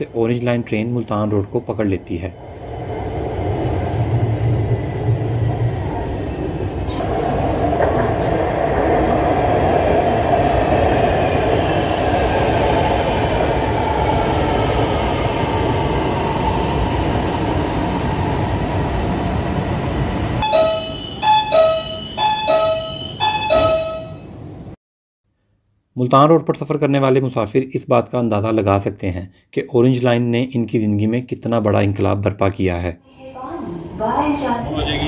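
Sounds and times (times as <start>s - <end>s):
ringing chime tones: 20.4s - 24.3s.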